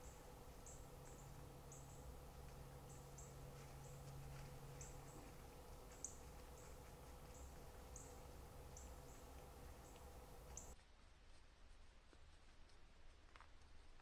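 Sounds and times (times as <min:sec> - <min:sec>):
faint high chirps: 0:00.0 - 0:10.8.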